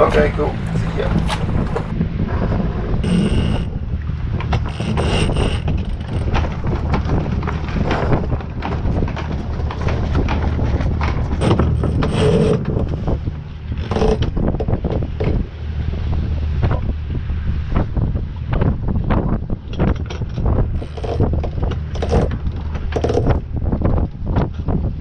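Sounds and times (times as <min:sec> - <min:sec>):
wind rush on microphone: 0:00.0 - 0:25.0
winch clicking: 0:09.2 - 0:13.2.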